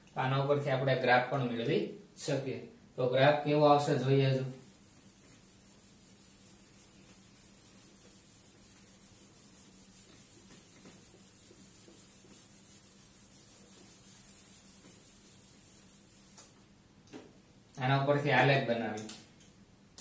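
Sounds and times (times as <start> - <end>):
cloth rubbing on whiteboard: 4.0 - 16.7.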